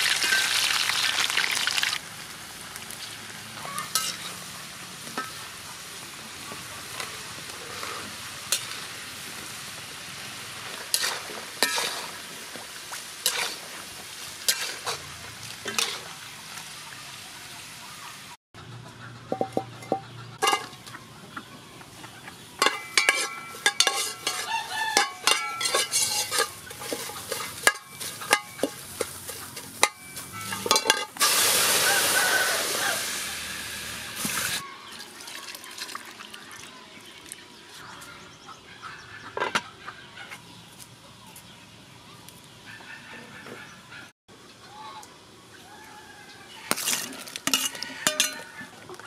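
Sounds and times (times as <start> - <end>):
water pouring into pot: 0.0 - 2.0.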